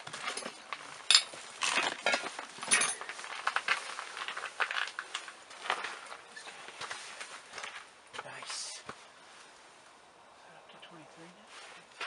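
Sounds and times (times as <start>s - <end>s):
small hard objects clinking: 0.0s - 6.9s.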